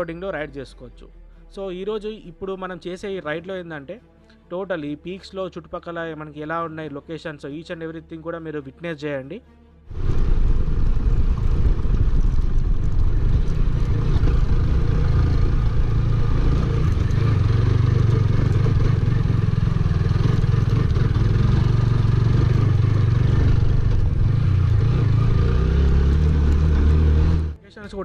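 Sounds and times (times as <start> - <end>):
heavy low rumble: 9.9 - 27.6
motorcycle engine running: 9.9 - 27.6.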